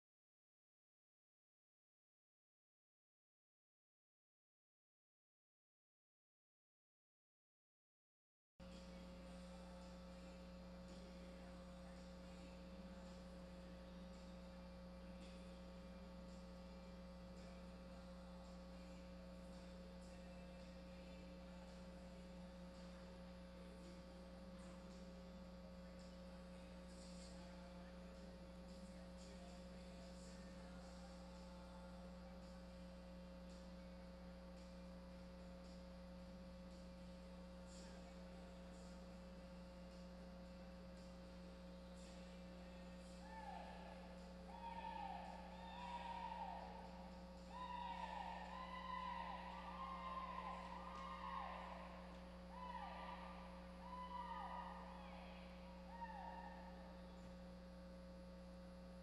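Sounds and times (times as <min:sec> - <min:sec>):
steady electrical hum: 0:08.6 - 0:59.0.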